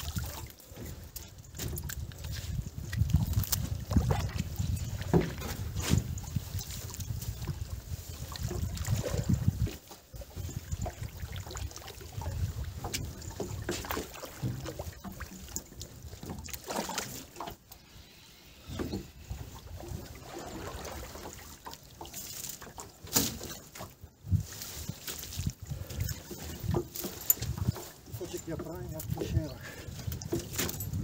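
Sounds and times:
wind rumble on microphone: 0.0s - 16.5s, 24.0s - 31.0s
water splashing and sloshing: 0.0s - 31.0s.

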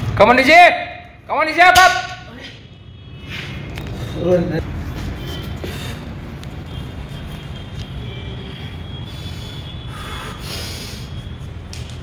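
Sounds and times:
short forceful breaths: 9.0s - 11.3s.

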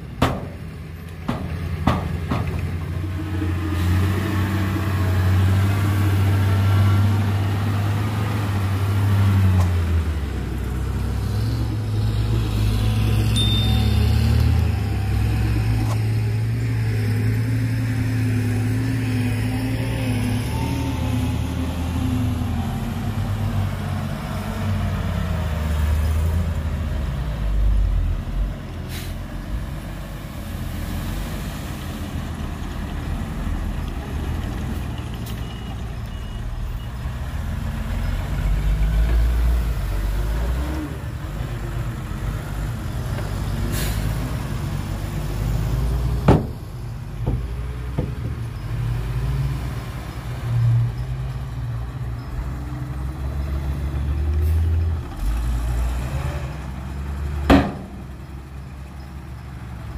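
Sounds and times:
sharp knocks: 0.2s - 0.6s, 1.3s - 2.7s, 46.3s - 46.6s.

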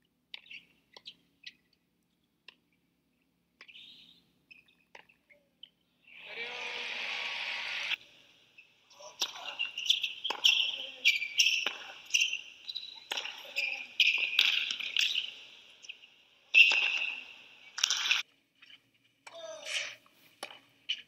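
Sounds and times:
shoe squeaks: 3.6s - 5.5s, 9.2s - 18.8s
racket hitting tennis ball: 9.2s - 12.4s, 13.0s - 15.3s, 16.5s - 17.2s
ball bouncing: 9.2s - 18.2s.

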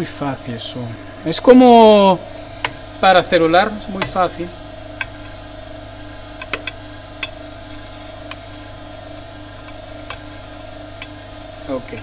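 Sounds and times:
laminator machine hum: 0.0s - 12.0s.

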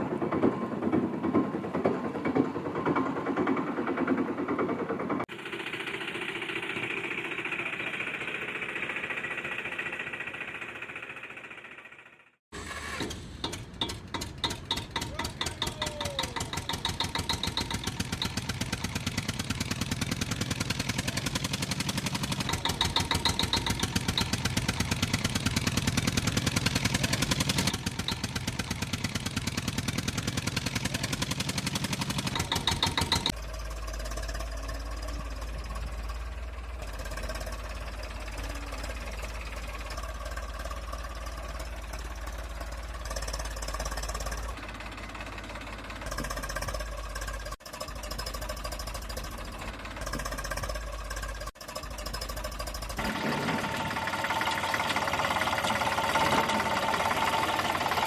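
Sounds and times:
tractor engine knocking: 0.0s - 58.0s
deep engine hum: 13.6s - 58.0s.

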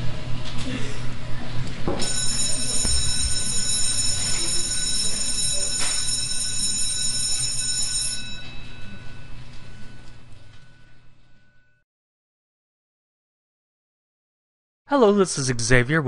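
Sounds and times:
electronic high ringing tones: 2.0s - 11.8s
low electronic hum: 8.2s - 11.8s.

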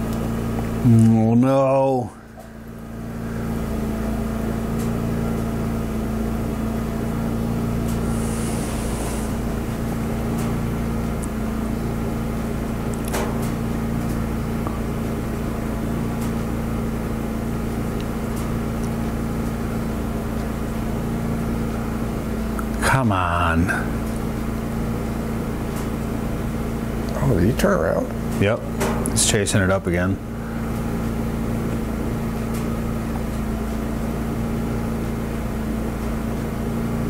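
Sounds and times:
steady mechanical hum: 0.0s - 37.0s.

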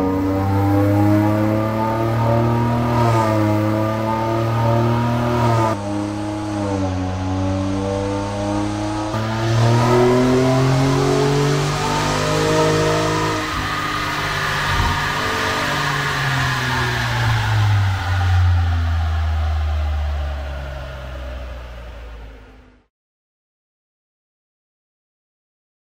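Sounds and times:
car engine running under load: 0.0s - 22.8s.

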